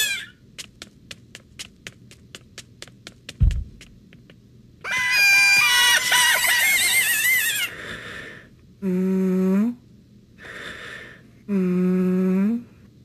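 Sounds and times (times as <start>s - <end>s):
low hummed mmm: 8.0s - 13.0s.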